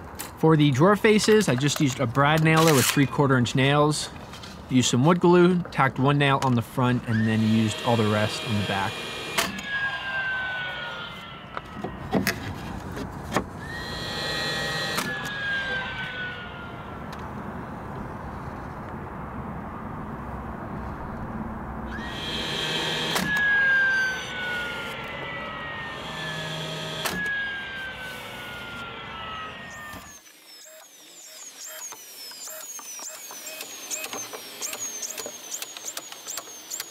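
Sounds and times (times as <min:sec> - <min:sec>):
nail gun shots: 0:02.3 - 0:03.0, 0:09.2 - 0:09.6
motor whine winding down: 0:06.8 - 0:18.6, 0:21.8 - 0:36.9.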